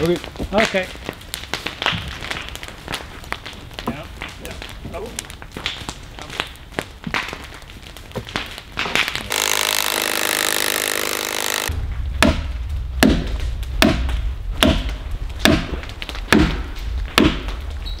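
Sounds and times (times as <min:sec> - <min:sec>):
loud mechanical noise: 0:09.3 - 0:11.7.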